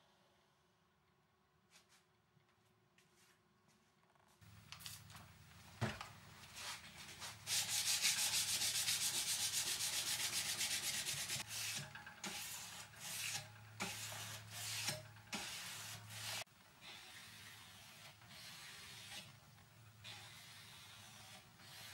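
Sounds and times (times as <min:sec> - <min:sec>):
sandpaper rubbing on steel blade: 0:07.1 - 0:19.3, 0:20.0 - 0:21.9.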